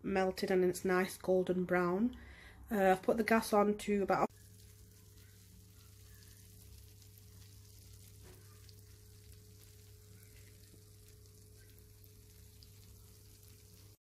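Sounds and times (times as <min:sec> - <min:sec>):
faint low hum: 0:04.1 - 0:14.0
background hiss: 0:04.3 - 0:14.0.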